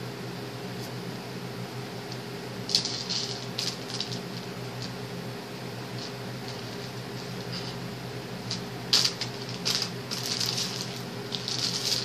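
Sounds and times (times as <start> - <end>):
low steady hum: 0.0 - 12.0
hands rustling lace: 8.5 - 12.0.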